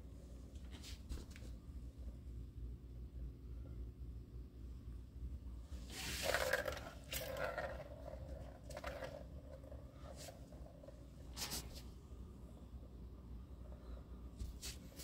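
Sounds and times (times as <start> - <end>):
plastic balls rolling in tracks: 5.8 - 11.7.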